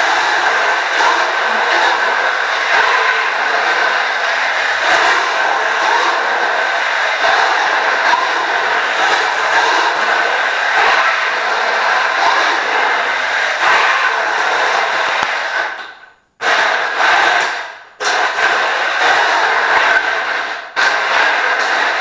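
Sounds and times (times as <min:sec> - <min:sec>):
electric drive motors whining: 0:00.0 - 0:16.0.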